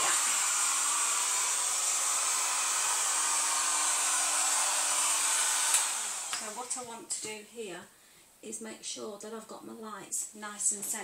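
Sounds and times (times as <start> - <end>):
rotary tool high-pitched whine: 0.0 - 6.5.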